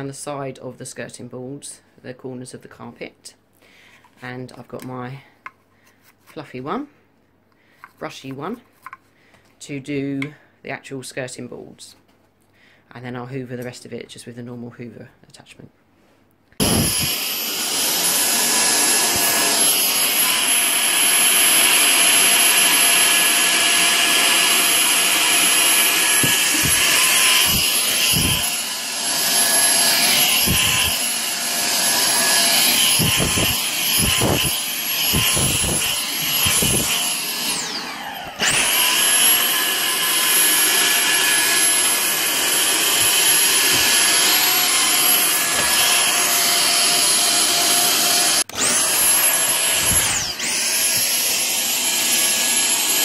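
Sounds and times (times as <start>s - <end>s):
cordless vacuum running: 16.6s - 53.0s.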